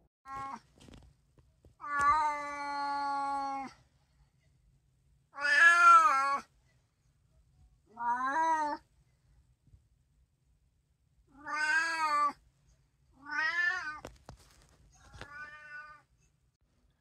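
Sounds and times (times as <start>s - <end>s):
cat meowing: 1.8s - 3.7s, 5.4s - 6.4s, 7.9s - 8.8s, 11.3s - 12.4s, 13.2s - 14.1s, 15.1s - 16.1s.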